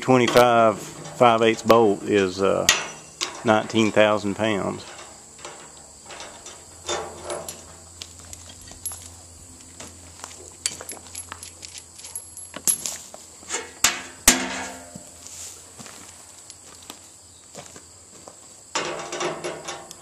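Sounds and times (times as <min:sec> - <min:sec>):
metallic clinks and clanks: 0:02.7 - 0:03.6, 0:04.8 - 0:09.3, 0:10.6 - 0:13.0.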